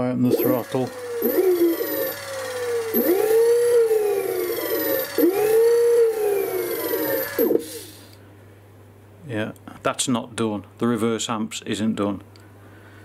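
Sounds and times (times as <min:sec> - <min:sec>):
electric motor whining: 0:00.0 - 0:08.1.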